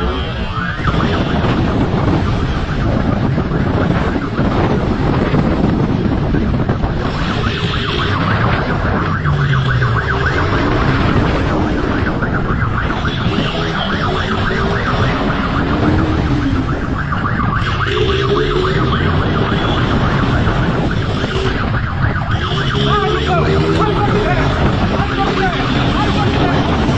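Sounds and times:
wailing siren: 0:00.0 - 0:26.9
wind rush on camera: 0:00.0 - 0:26.9
motorcycle engine revving: 0:17.7 - 0:26.9.

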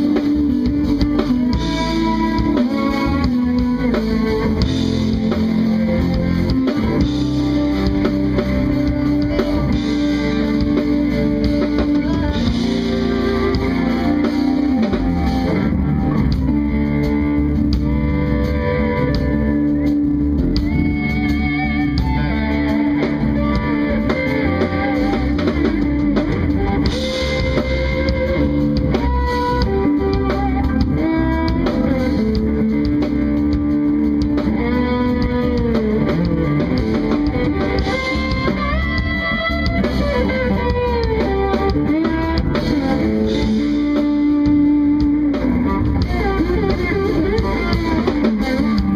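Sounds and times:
electric guitar melody: 0:00.0 - 0:48.9
jazz fusion band playing: 0:00.0 - 0:48.9.

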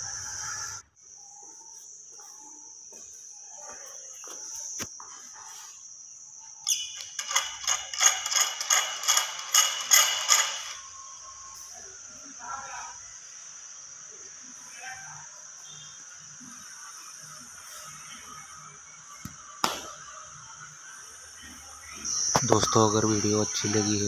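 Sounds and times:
metal valve handle squeaking: 0:06.7 - 0:10.8.

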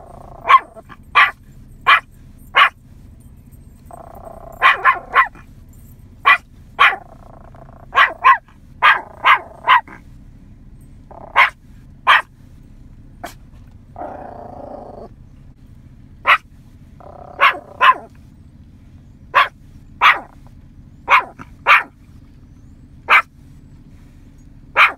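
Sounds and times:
small dog barking: 0:00.0 - 0:02.8, 0:03.9 - 0:05.5, 0:06.2 - 0:10.1, 0:11.1 - 0:12.3, 0:13.2 - 0:13.4, 0:16.2 - 0:18.2, 0:19.3 - 0:22.0, 0:23.0 - 0:23.3
dog drawn-out low sound: 0:03.9 - 0:05.4.

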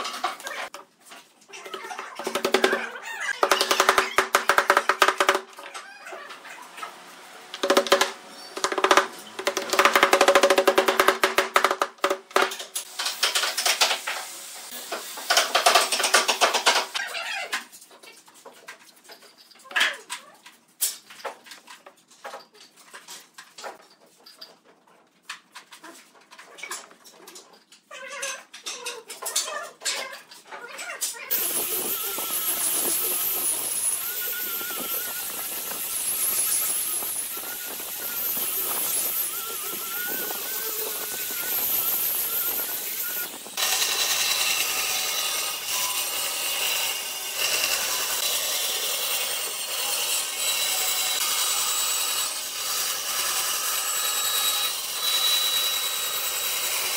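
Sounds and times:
wooden pieces knocking: 0:03.4 - 0:05.6, 0:07.6 - 0:14.0
angle grinder sanding wood: 0:31.3 - 0:56.9.

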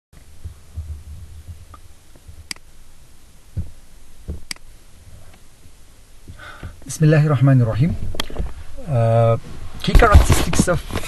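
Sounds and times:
dull low thumps: 0:00.2 - 0:10.3
low background rumble: 0:00.2 - 0:11.0.

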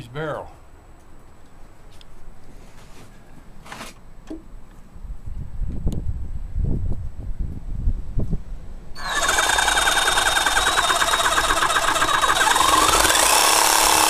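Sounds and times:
reciprocating saw cutting barrel: 0:09.0 - 0:14.0.

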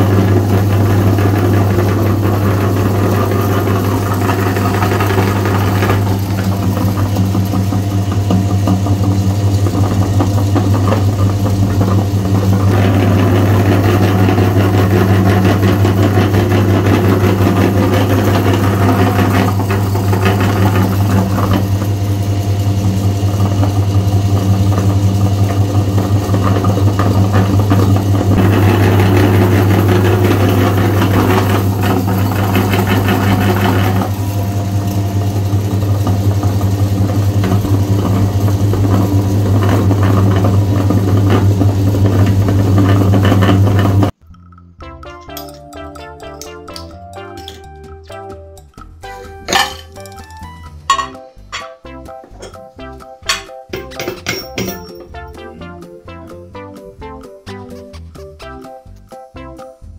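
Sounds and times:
meat grinder humming: 0:00.0 - 0:44.6
rough grinding noise: 0:00.0 - 0:44.7.

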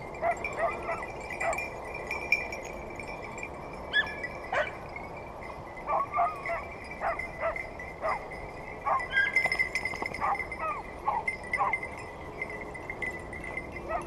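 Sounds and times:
dogs yelping: 0:00.2 - 0:01.6, 0:03.9 - 0:04.8, 0:05.9 - 0:09.5, 0:10.2 - 0:11.8.

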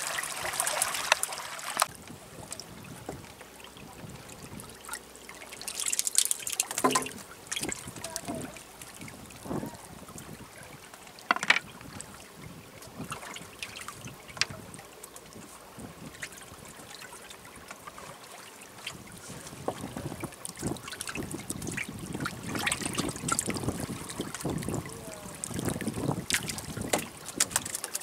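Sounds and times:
water splashing against boat: 0:00.0 - 0:28.0
small knocks and clicks: 0:11.3 - 0:11.7.

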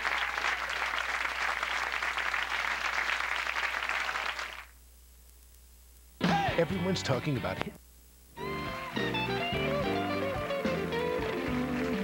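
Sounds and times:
audience applauding: 0:00.0 - 0:04.7, 0:08.5 - 0:12.0.

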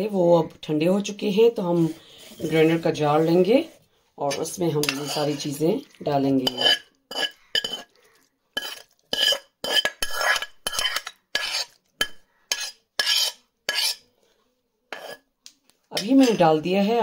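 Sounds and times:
metal spoon scraping and knocking: 0:04.3 - 0:07.9, 0:08.6 - 0:14.1, 0:14.9 - 0:15.2, 0:15.9 - 0:16.6.

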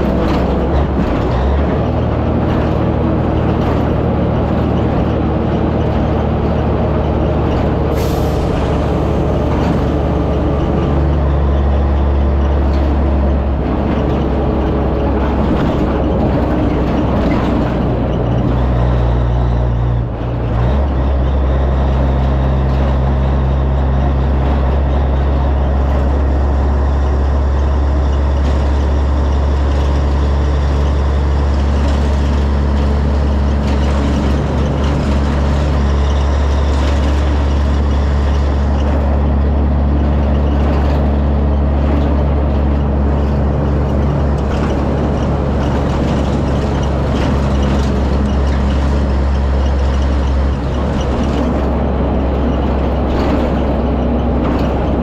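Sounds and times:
truck diesel engine running: 0:00.0 - 0:55.0.

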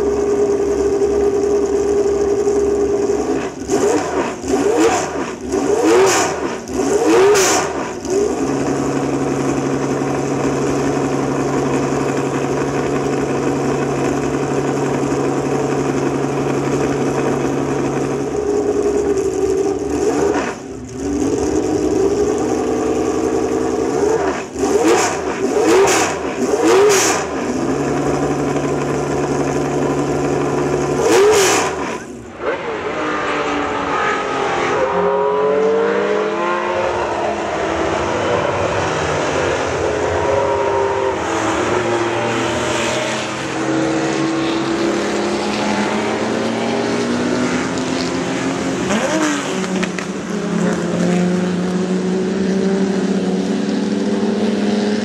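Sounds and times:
race car engine idling: 0:00.0 - 0:07.0, 0:07.6 - 0:32.4, 0:47.1 - 0:55.0
engine revving blips: 0:02.4 - 0:08.5, 0:23.8 - 0:28.7, 0:30.8 - 0:48.0
race cars passing at speed: 0:31.0 - 0:55.0.

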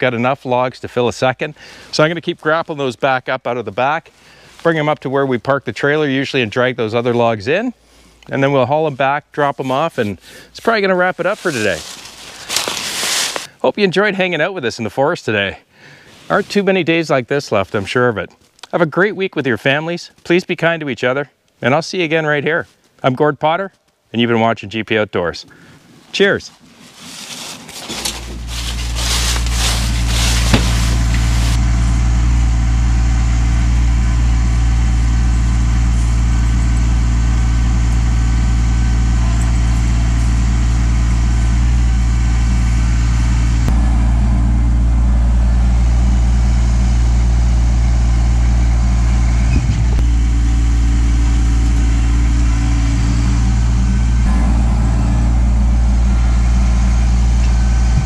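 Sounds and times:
tractor diesel engine running: 0:09.6 - 0:13.5, 0:27.2 - 0:58.0.

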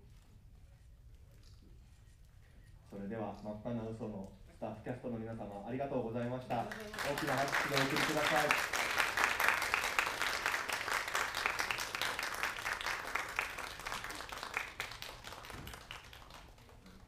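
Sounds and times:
audience applauding: 0:06.5 - 0:17.0.

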